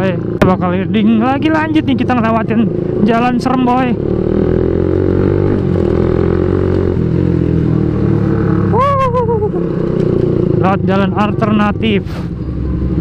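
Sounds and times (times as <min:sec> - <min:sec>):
motorcycle engine with noisy exhaust: 0:00.0 - 0:13.0
short voice call: 0:08.7 - 0:09.6.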